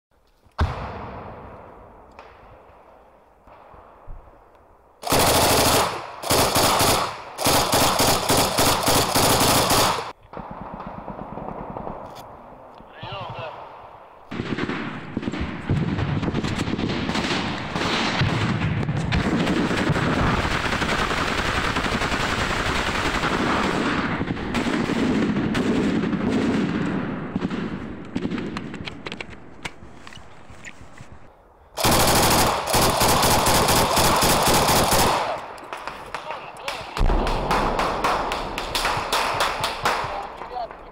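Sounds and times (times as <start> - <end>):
machine-gun fire: 5.0 - 12.1, 14.3 - 28.6, 31.8 - 36.2, 37.0 - 40.2.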